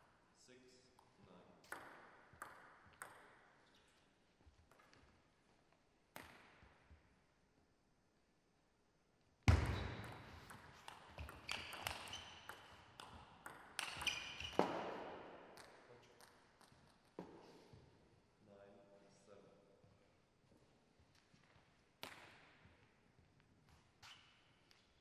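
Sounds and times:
ping pong ball clicking: 1.7 - 3.4, 10.5 - 14.6
short squeaks: 11.4 - 12.7, 13.8 - 14.7.

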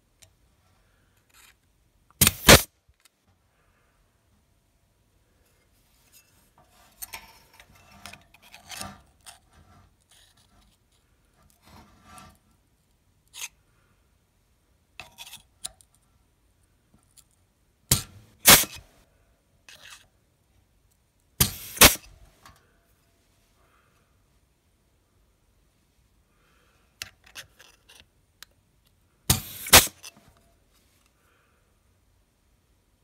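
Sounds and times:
steel sheet rustling and scraping: 5.5 - 10.5, 18.0 - 18.8.

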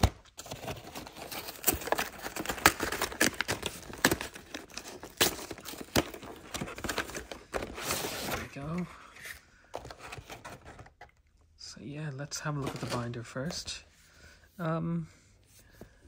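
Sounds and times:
cardboard box being torn open: 0.0 - 8.5.

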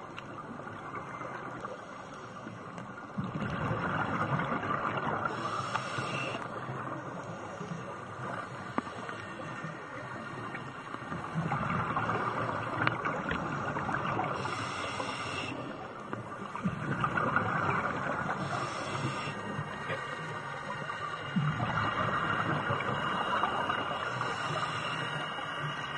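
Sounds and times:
faint ticks: 0.1 - 3.4, 5.3 - 16.7
scuba regulator exhaust bubbles: 3.1 - 6.4, 11.1 - 25.9
underwater rushing hiss: 5.0 - 6.6, 13.4 - 15.9, 17.0 - 25.9.

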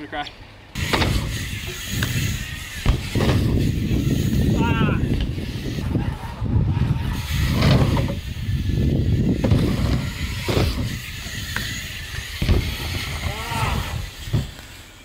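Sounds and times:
bike tyres rumbling: 0.6 - 15.0
bike landing knocks: 0.8 - 4.0, 9.3 - 14.7.

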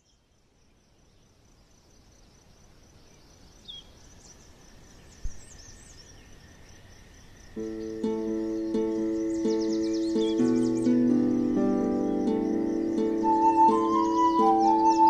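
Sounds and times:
background hiss: 0.0 - 15.0
high insect trill: 0.7 - 15.0
bird chirps: 7.6 - 15.0.

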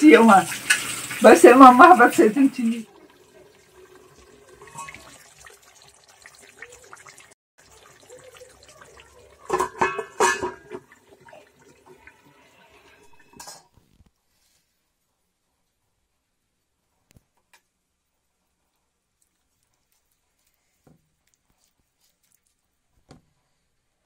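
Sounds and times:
glass lid clinking on pot: 9.5 - 10.8.

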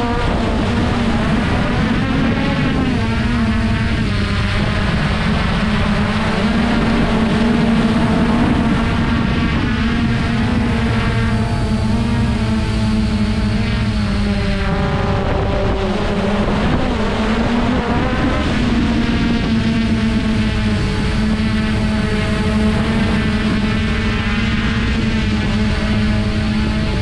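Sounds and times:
quadcopter buzzing hum: 0.0 - 27.0.

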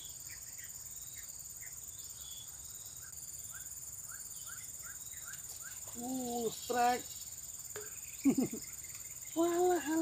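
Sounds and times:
insects droning: 0.0 - 10.0.

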